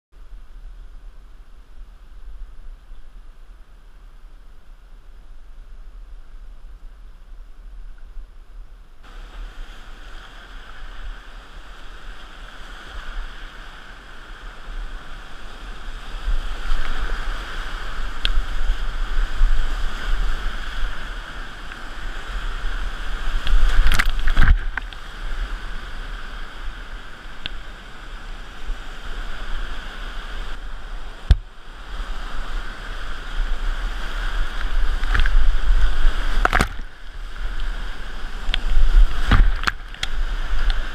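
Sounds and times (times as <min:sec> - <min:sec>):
water splashing against kayak: 0:09.0 - 0:40.9
whitewater rapids roaring: 0:09.1 - 0:40.9.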